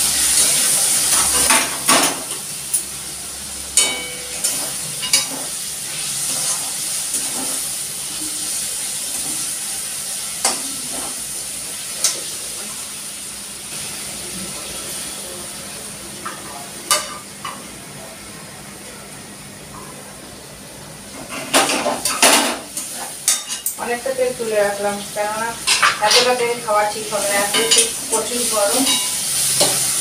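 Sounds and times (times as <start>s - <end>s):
chicken sizzling in hot oil: 0.0s - 17.4s, 20.9s - 30.0s
metal spoon clinking on wok: 3.8s - 4.4s.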